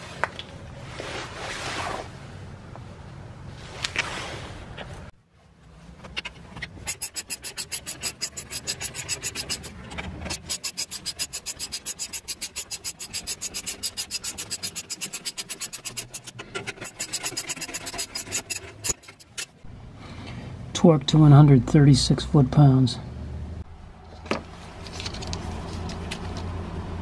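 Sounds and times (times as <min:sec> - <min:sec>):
ratchet wrench clicking: 0:06.8 - 0:16.3.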